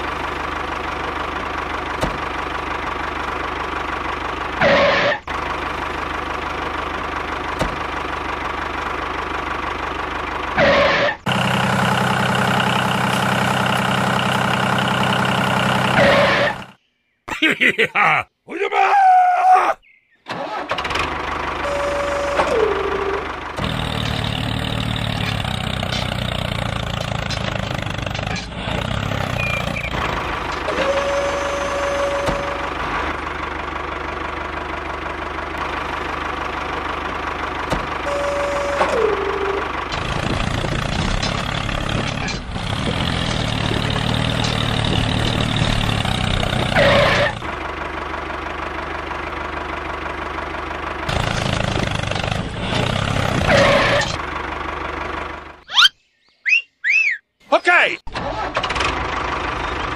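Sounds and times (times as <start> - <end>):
tractor engine chugging: 0.0 - 16.8, 20.3 - 55.9, 57.6 - 59.9
whistle-like tones dipping in pitch: 55.7 - 57.3.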